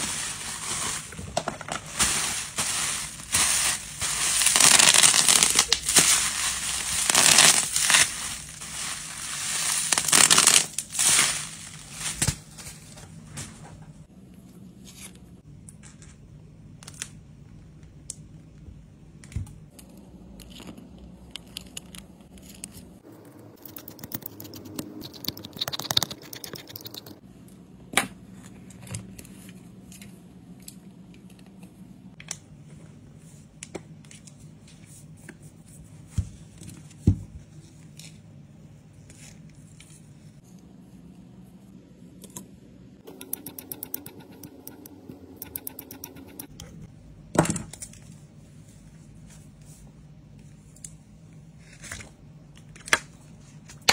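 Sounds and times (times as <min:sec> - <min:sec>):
bubble wrap popping: 0:01.9 - 0:12.6.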